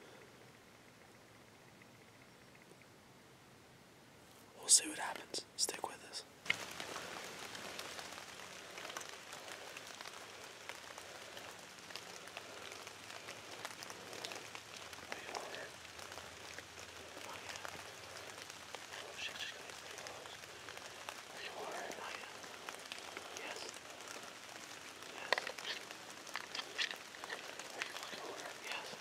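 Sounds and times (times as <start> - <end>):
rain on dry leaves: 6.4 - 29.0.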